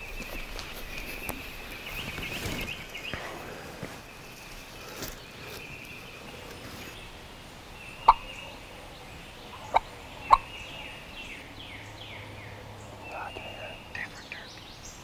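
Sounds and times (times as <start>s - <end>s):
birds whistling: 4.8s - 15.0s
turkey gobbling: 8.0s - 8.8s, 9.5s - 10.5s.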